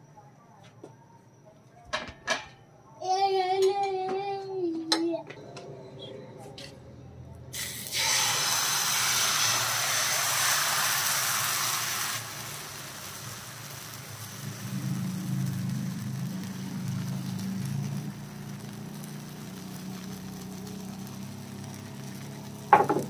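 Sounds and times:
batter sizzling in a frying pan: 0:07.6 - 0:23.0.

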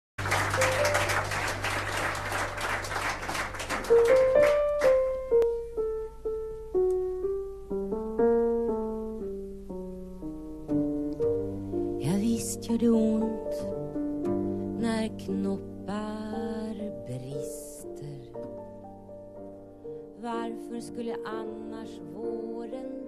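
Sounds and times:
audience applause: 0:00.2 - 0:05.2
slow piano notes and chords: 0:00.2 - 0:23.0.

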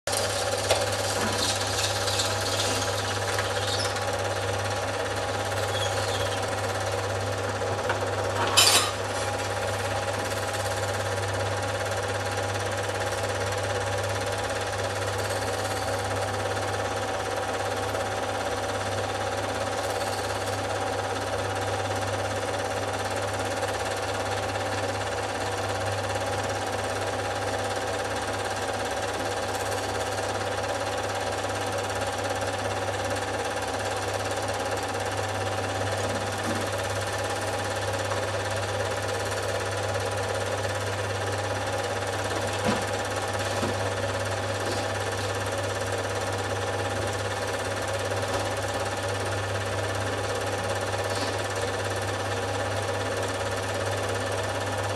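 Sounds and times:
film projector clattering: 0:00.1 - 0:10.8.

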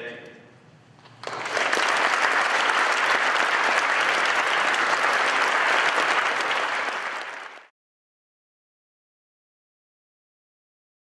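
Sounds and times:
audience applauding: 0:01.1 - 0:07.7.

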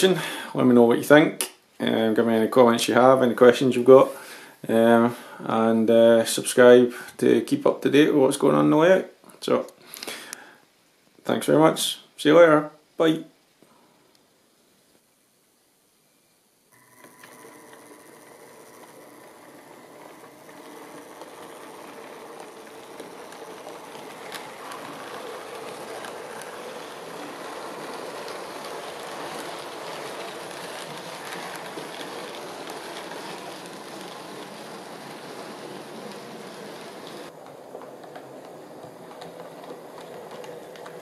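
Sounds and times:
model train wheels rumbling: 0:16.8 - 0:41.0
rail joint clicks: 0:17.7 - 0:41.0.

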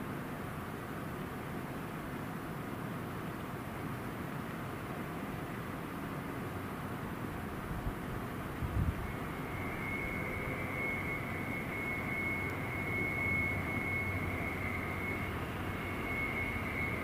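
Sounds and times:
train rumbling past: 0:07.6 - 0:17.0
high-pitched whine: 0:08.2 - 0:17.0.

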